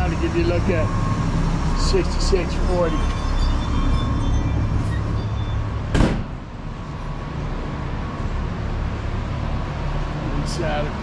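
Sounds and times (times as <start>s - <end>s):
metal door banging shut: 5.9s - 6.5s.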